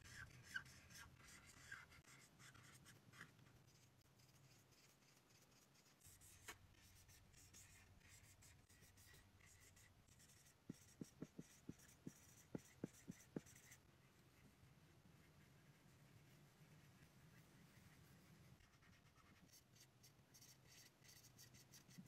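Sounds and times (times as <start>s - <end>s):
marker scratching on whiteboard: 0.0s - 13.9s, 16.6s - 22.0s.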